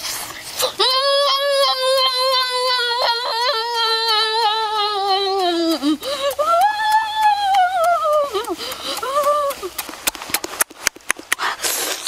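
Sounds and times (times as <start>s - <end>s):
child's long vocal cry: 0.6s - 9.7s.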